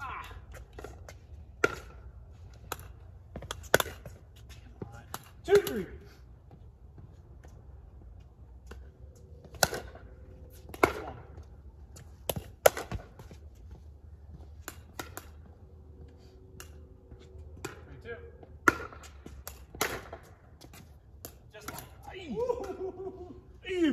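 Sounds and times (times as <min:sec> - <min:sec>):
paddles hitting pickleball: 0:00.0 - 0:06.0, 0:08.6 - 0:13.4, 0:14.6 - 0:15.5, 0:17.6 - 0:23.0
ball bouncing on hard court: 0:00.5 - 0:02.0, 0:17.6 - 0:22.0.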